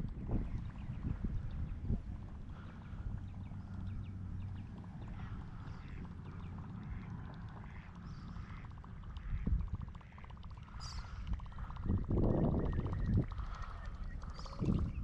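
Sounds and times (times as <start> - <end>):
fishing reel ticking: 0.0 - 15.0
low rumble: 0.0 - 15.0.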